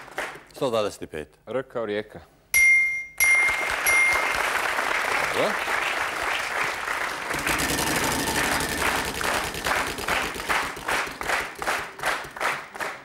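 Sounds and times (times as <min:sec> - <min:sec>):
audience applauding: 0:03.3 - 0:13.0.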